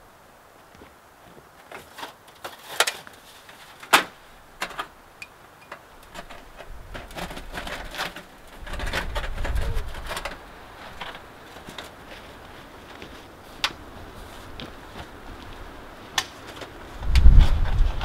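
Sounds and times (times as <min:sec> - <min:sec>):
wind rumble on microphone: 0:06.5 - 0:11.1, 0:16.8 - 0:18.0.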